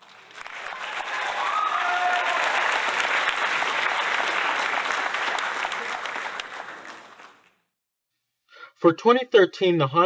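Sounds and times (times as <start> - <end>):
crowd applauding: 0.0 - 7.6.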